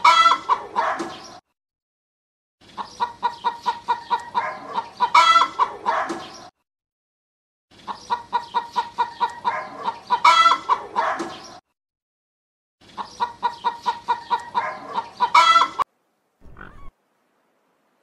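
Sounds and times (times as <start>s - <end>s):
hen clucking and squawking: 0.0s - 1.2s, 2.8s - 6.0s, 7.9s - 11.2s, 13.0s - 15.8s, 16.4s - 16.9s.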